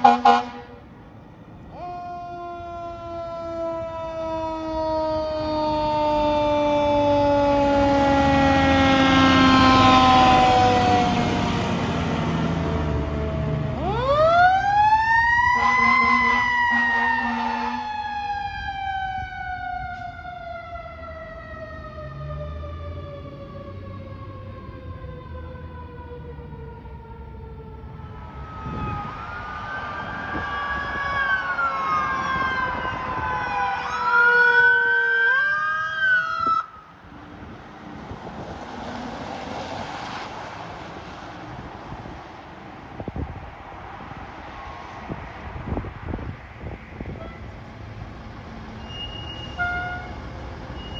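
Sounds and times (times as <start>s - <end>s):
air horn burst: 0.0s - 0.8s, 48.8s - 50.2s
traffic: 0.0s - 50.9s
wind: 0.0s - 50.9s
mechanical siren wailing: 2.2s - 11.3s, 12.6s - 37.0s
electronic siren wailing and yelping: 27.9s - 36.8s.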